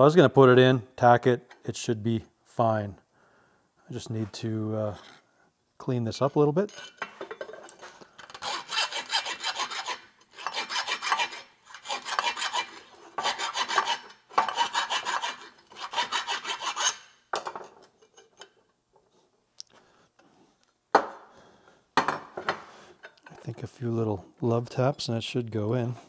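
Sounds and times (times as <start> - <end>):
file rasping inside steel tube: 8.3 - 17.1.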